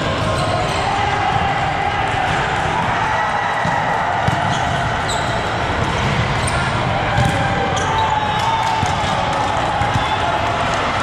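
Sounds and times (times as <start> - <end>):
sneakers squeaking on court: 4.2 - 8.4
volleyball being struck: 7.1 - 7.6.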